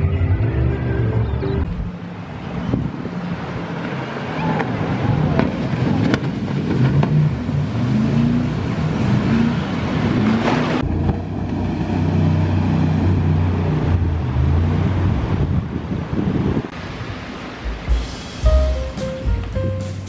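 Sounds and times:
engine humming: 0.0s - 15.5s
steady rushing noise: 13.3s - 20.0s.

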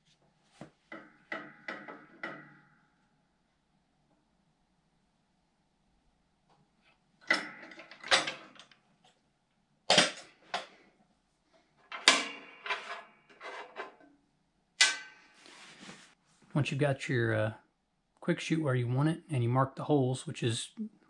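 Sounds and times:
metal cover clanking and rattling: 0.9s - 2.7s, 7.2s - 8.8s, 11.9s - 14.1s, 14.8s - 15.3s.

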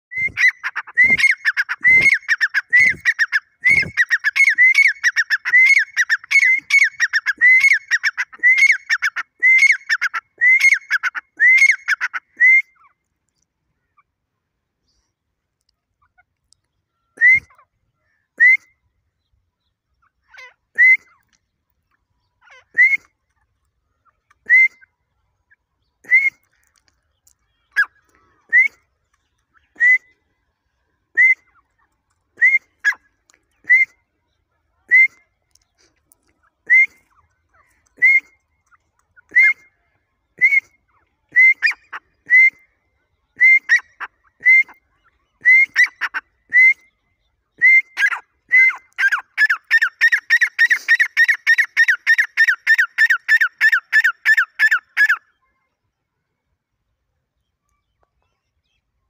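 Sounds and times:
bird whistled calls: 0.1s - 13.0s, 40.4s - 55.2s.

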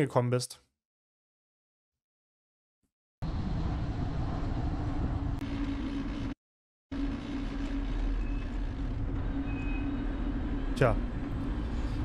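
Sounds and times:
low wind rumble: 3.2s - 6.3s, 7.0s - 12.0s
steady low hum: 3.2s - 12.0s
road and traffic noise: 8.8s - 12.0s.

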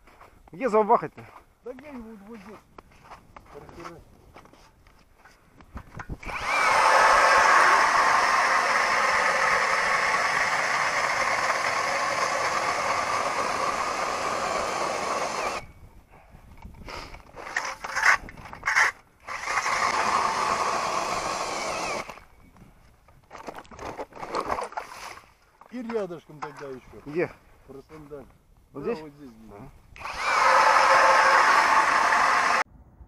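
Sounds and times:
ice auger grinding through ice: 6.2s - 15.6s, 17.4s - 22.2s, 30.0s - 32.6s.

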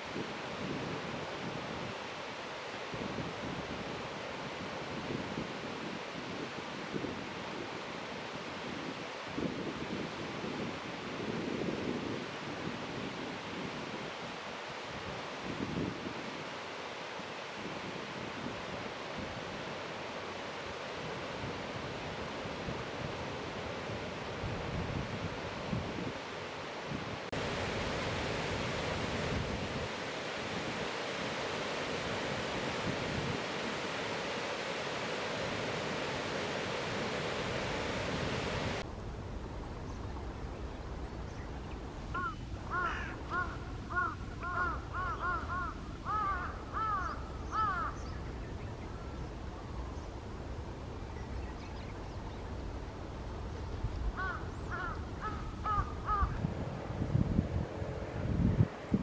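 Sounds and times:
steady rushing noise: 27.3s - 39.7s.

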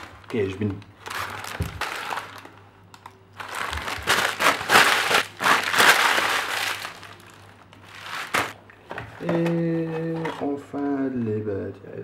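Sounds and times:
paper bag crumpling: 0.0s - 2.6s, 3.4s - 8.6s.

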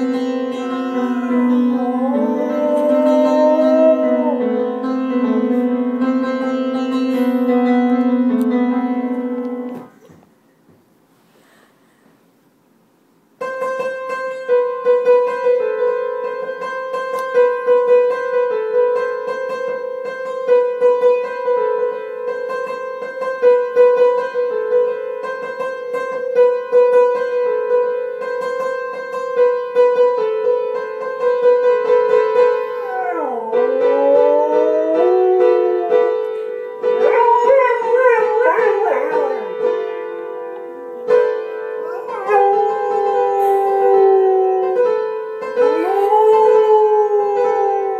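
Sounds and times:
dog howling: 0.0s - 5.5s, 32.4s - 39.6s, 41.8s - 47.9s
music with plucked notes: 0.0s - 10.0s, 13.4s - 47.9s.

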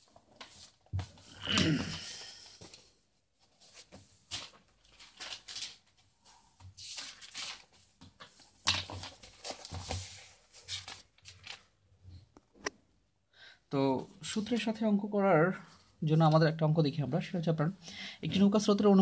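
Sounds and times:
paper rustling on a table: 0.0s - 11.7s.

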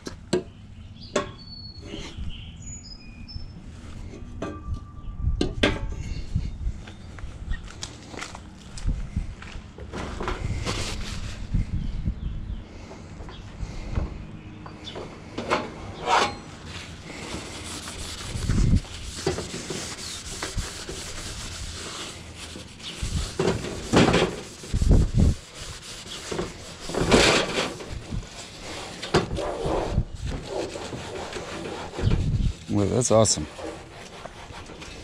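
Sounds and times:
paper towel wiping metal: 17.1s - 27.1s.

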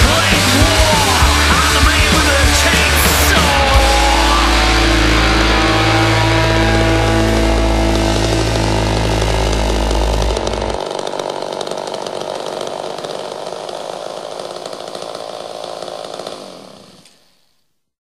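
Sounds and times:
low rock guitar chord: 0.0s - 10.8s
chainsaw running: 0.0s - 17.6s.

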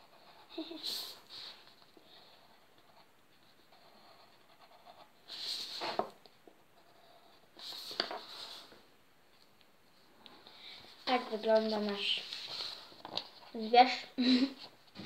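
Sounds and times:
pen scratching on paper: 0.0s - 8.8s.

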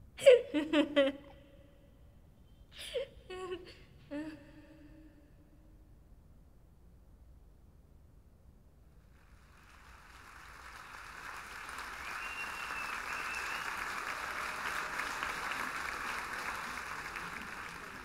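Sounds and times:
audience applauding: 9.2s - 18.0s.

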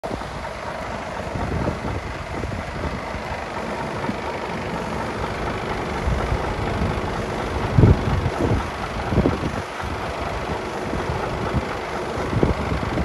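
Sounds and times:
diesel truck engine idling: 0.0s - 13.0s.

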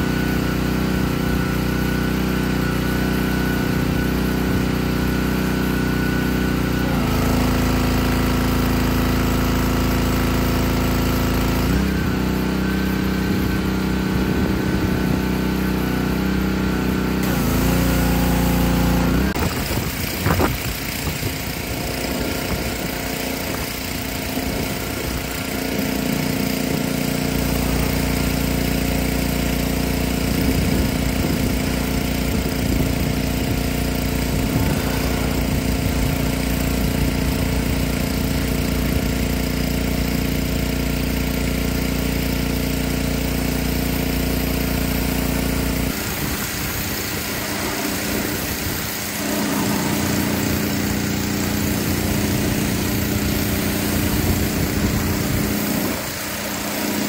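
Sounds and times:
pressure washer engine running: 0.0s - 57.0s
water jet hissing against metal: 17.2s - 30.0s, 44.3s - 57.0s.

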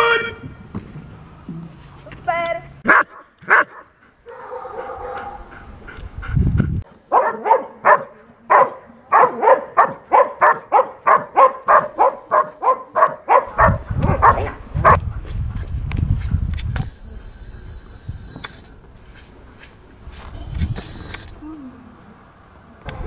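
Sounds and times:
dog barking rapidly: 2.8s - 5.4s, 7.1s - 15.0s.

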